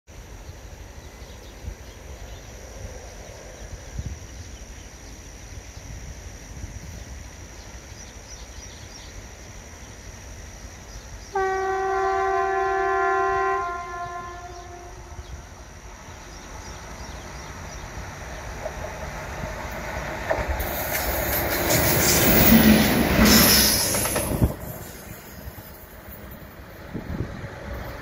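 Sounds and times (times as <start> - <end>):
locomotive horn blast: 11.3 - 15.4.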